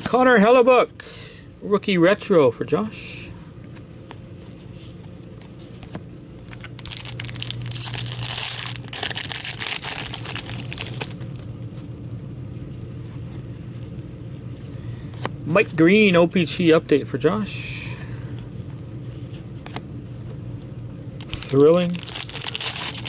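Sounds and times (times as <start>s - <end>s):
card pack wrapper crinkling and tearing: 6.4s - 11.5s, 21.2s - 23.0s.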